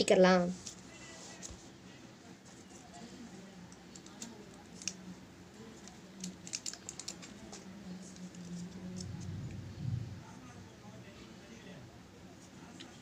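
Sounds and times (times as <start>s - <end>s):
faint low hum: 0.0s - 13.0s
small craft pieces clicking: 6.2s - 7.4s.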